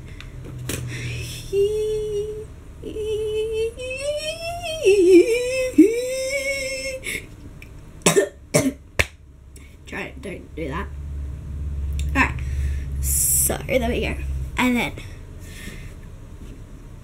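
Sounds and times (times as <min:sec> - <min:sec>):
girl singing wordless tune: 0:00.9 - 0:07.2, 0:12.0 - 0:15.2.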